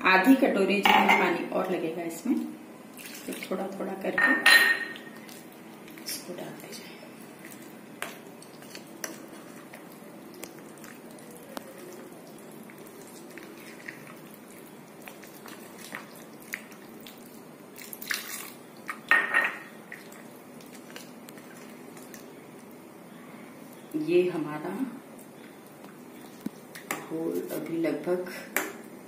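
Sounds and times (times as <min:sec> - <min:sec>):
spoon stirring wet batter: 0:04.9 - 0:19.1, 0:19.9 - 0:22.8.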